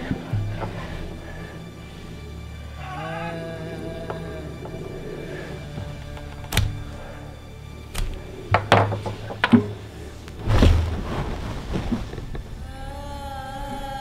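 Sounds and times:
heavy thump: 0:10.4 - 0:12.4.

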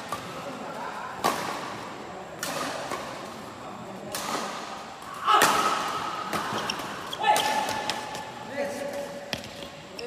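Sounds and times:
racket hitting shuttlecock: 0:01.1 - 0:03.2, 0:04.0 - 0:08.4.

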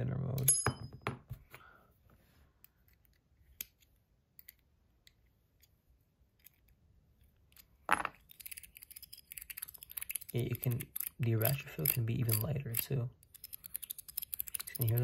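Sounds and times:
metal fidget coin clicking: 0:08.2 - 0:15.0
light ratchet clicks: 0:08.4 - 0:15.0.

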